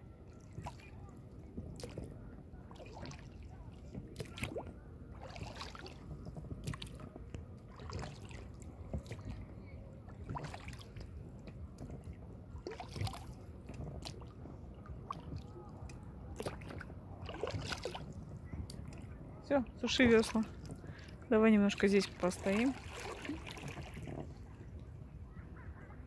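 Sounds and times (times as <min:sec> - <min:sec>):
oars splashing in water: 0:00.3 - 0:24.8.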